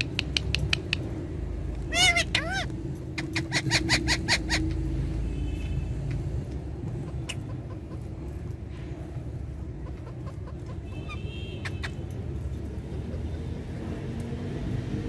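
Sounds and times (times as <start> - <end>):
parakeet chirping: 1.9 - 4.9.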